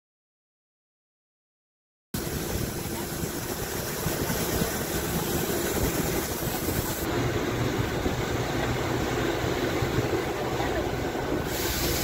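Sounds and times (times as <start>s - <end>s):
bus engine and road rumble: 2.2s - 12.0s
high hiss: 11.3s - 12.0s.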